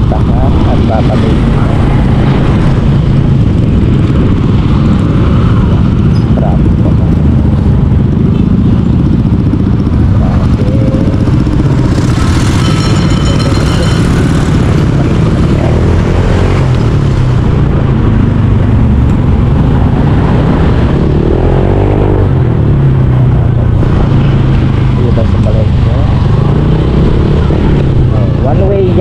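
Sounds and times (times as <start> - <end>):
motorcycle engine running: 0.0 - 29.0
brief high-pitched tone: 12.4 - 14.5.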